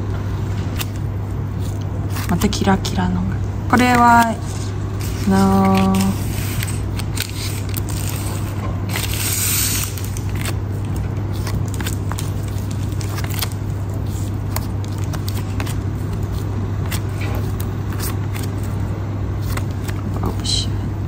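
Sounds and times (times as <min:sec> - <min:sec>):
steady low hum: 0:00.0 - 0:21.0
cards sliding and clicking: 0:03.8 - 0:18.8, 0:19.4 - 0:20.4.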